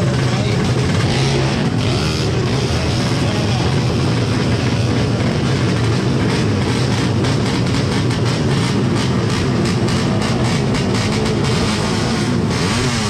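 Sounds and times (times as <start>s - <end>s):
scooters racing at full throttle: 0.0s - 13.0s.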